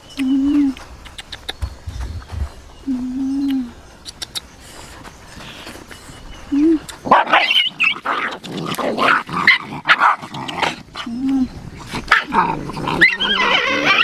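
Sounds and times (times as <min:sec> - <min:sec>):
faint clicks: 0:00.2 - 0:01.8
harsh animal sounds: 0:07.3 - 0:14.0.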